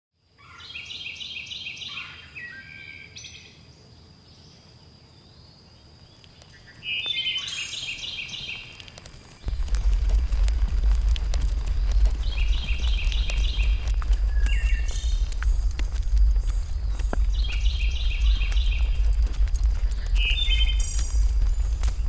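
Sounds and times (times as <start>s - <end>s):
songbird singing: 0.2s - 22.0s
low rumble: 9.4s - 22.0s.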